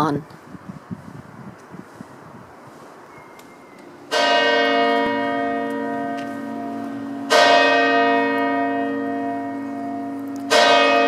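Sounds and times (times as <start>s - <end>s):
church bell ringing: 4.1s - 11.0s.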